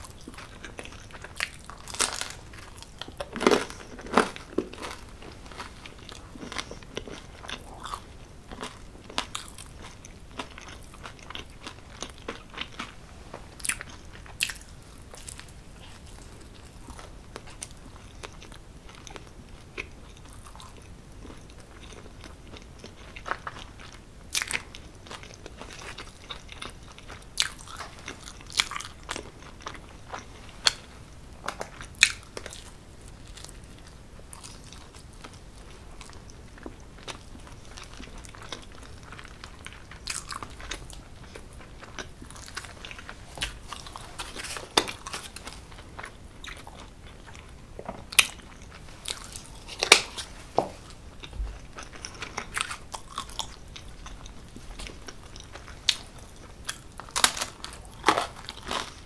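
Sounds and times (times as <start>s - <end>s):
crunchy bites: 0.0s - 19.2s, 31.5s - 59.0s
wet chewing: 31.6s - 59.0s.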